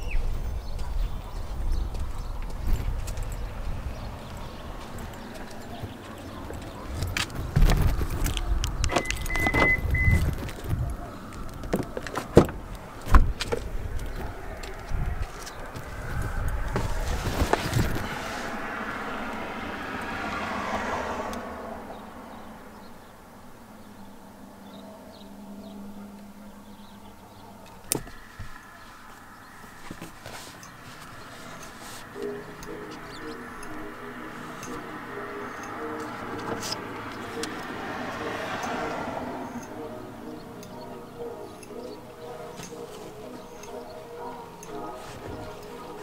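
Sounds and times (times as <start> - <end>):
car interior hum: 1.2 - 46.0
car door opening: 4.8 - 21.0, 34.4 - 39.7
high electronic beep: 8.9 - 10.3.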